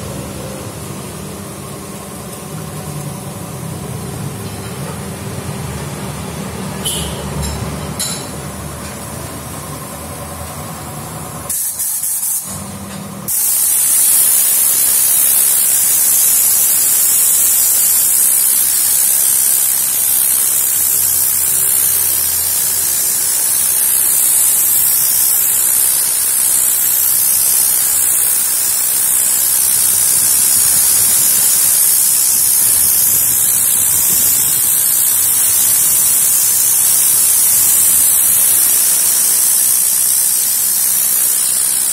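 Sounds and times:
compressed-air gun hissing: 11.5s - 12.6s, 13.3s - 41.9s.

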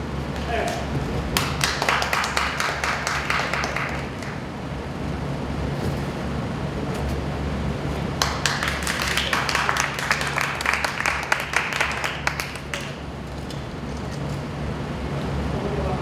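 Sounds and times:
audience clapping: 0.4s - 4.4s, 8.2s - 13.0s.

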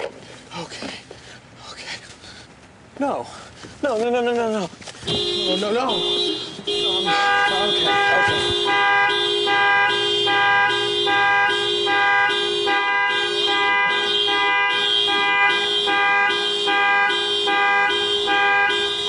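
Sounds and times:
car alarm horn honking: 5.1s - 19.0s.

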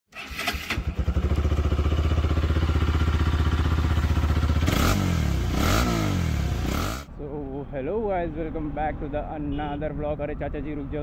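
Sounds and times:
motorcycle engine revving: 0.2s - 7.1s.

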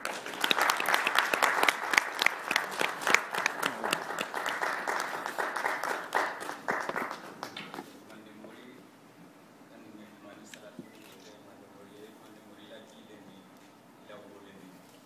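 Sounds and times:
audience applauding: 0.0s - 7.8s.

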